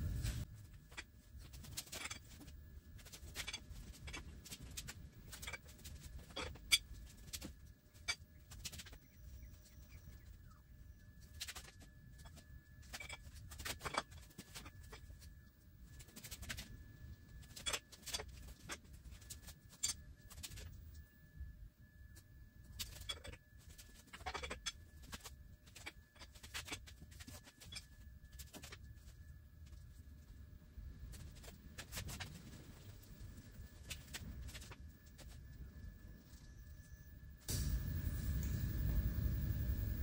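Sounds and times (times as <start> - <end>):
faint high whine: 0.0 - 40.0
low rumble: 34.4 - 40.0.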